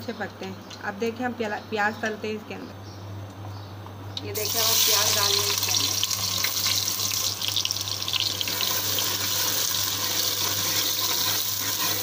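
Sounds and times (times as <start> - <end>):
onions sizzling in hot oil: 4.3 - 12.0.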